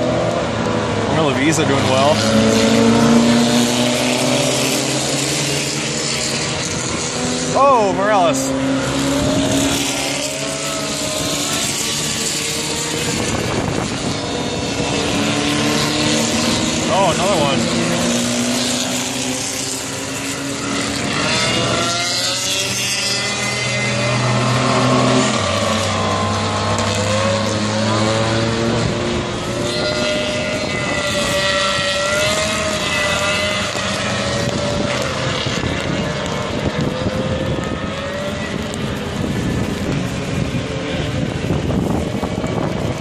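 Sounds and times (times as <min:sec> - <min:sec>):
race cars passing: 0:00.0 - 0:43.0.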